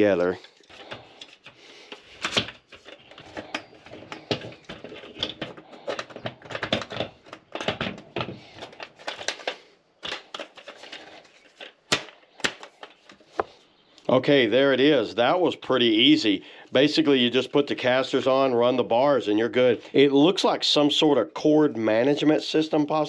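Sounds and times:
plastic and metal parts clicking: 0.2s - 13.5s.

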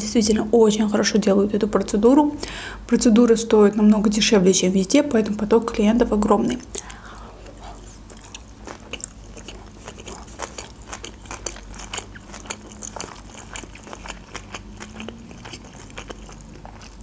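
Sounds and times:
chewing mouth clicks and smacks: 6.8s - 17.0s.

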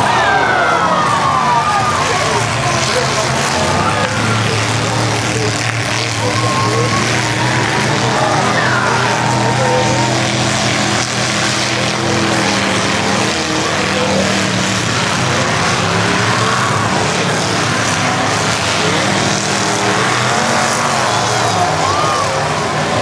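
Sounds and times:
truck engines revving together: 0.0s - 23.0s.

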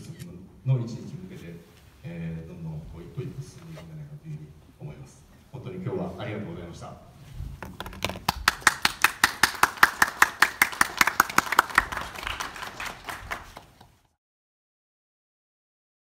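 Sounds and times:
small audience clapping: 7.7s - 14.1s.

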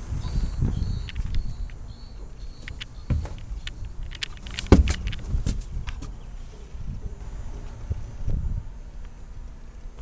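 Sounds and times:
footsteps: 2.6s - 6.7s
camera handling knocks: 4.5s - 5.6s.

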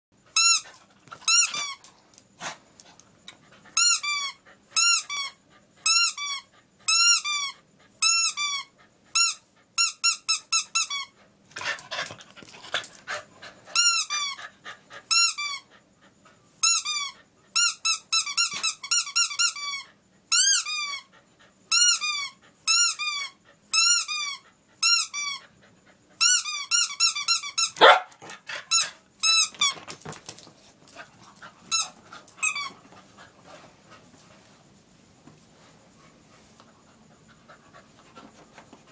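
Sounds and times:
rubber squeaky toy squeaking: 31.7s - 32.8s.

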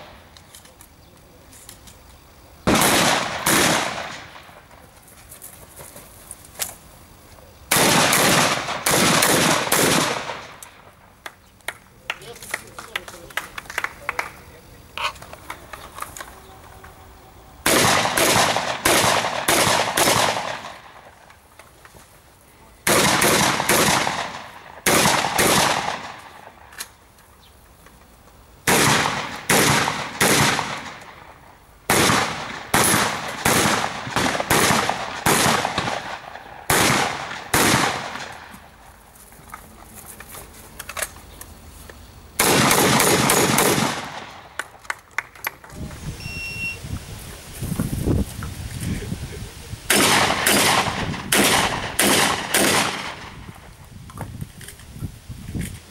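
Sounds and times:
rifle gunshots: 2.6s - 4.7s, 7.7s - 10.8s, 17.6s - 21.1s, 22.8s - 26.6s, 28.7s - 31.2s, 31.9s - 38.5s, 42.4s - 44.6s, 49.9s - 53.5s.

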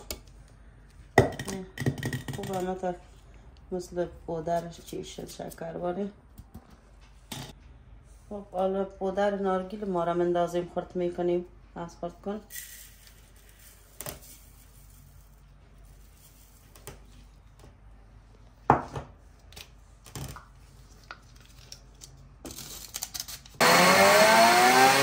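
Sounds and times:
electric chopper motor whining: 23.6s - 25.0s.

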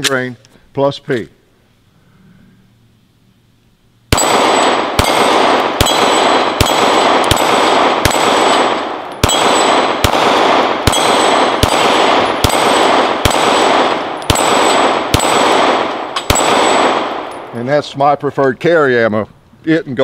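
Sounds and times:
steel target ringing: 4.1s - 17.5s
pistol gunshots: 4.1s - 17.6s.

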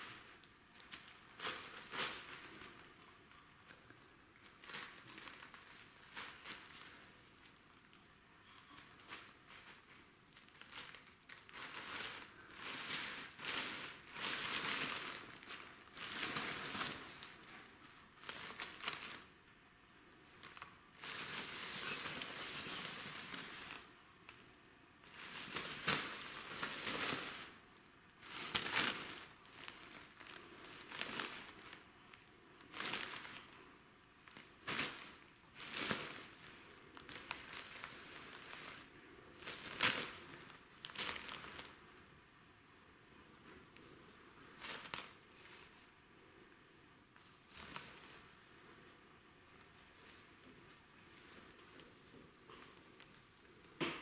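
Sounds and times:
cellophane bag crinkling: 4.4s - 8.0s, 8.6s - 19.3s, 20.3s - 27.6s, 28.2s - 33.6s, 34.2s - 42.0s.

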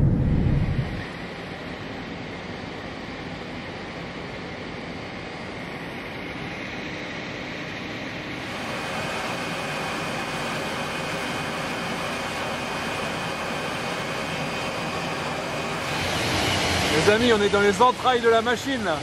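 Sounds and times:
rushing air: 0.0s - 1.1s.

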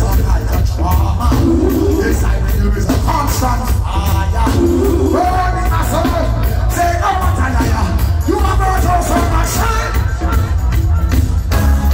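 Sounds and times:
person singing: 0.0s - 11.2s
live reggae band playing: 0.0s - 11.9s.

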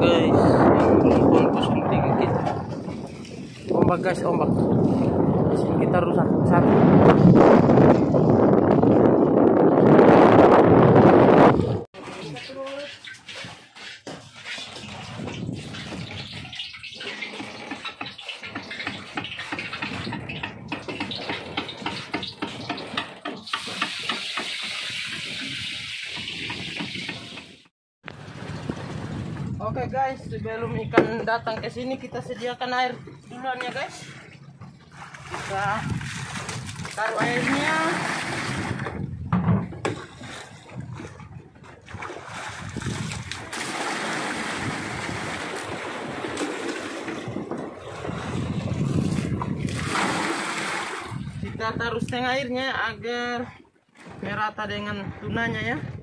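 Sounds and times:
sea water splashing against hull: 0.0s - 31.8s, 32.9s - 51.6s, 53.5s - 54.6s
water poured from a bucket: 12.0s - 20.2s, 23.4s - 27.4s, 41.9s - 51.4s.

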